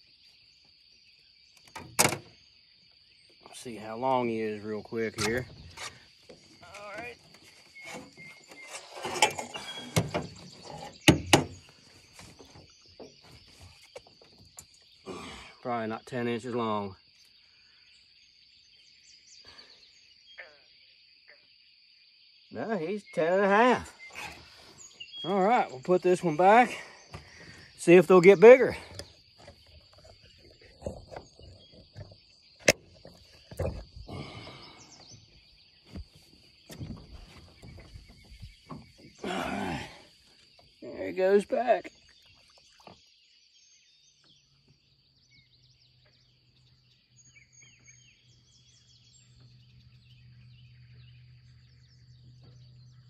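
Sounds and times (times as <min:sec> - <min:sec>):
knocks and thumps in a boat: 0:04.8 - 0:14.9, 0:26.4 - 0:39.5.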